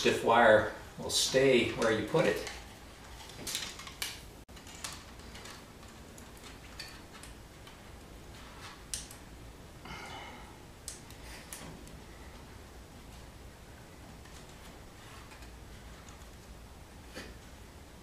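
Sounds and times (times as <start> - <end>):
wire clicking as it is handled: 1.7 - 9.3, 10.8 - 12.5.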